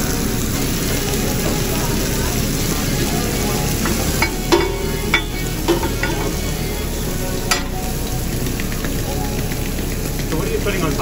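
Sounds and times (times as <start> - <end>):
food sizzling on a griddle: 0.0 - 11.0
utensil scraping and tapping griddle: 3.8 - 6.7.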